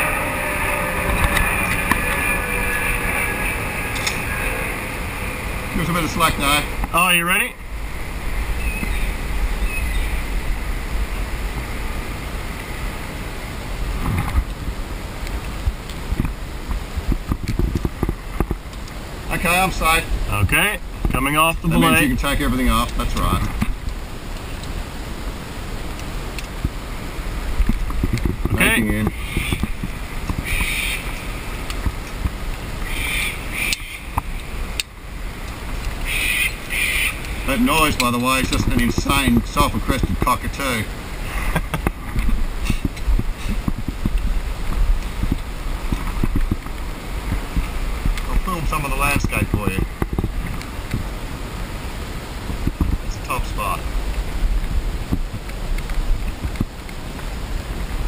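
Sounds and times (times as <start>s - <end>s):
cockatoo screeching calls: 0.0s - 5.5s, 29.1s - 29.7s, 30.4s - 31.3s, 32.8s - 34.2s, 36.0s - 37.3s
low wind rumble on microphone: 0.0s - 58.0s.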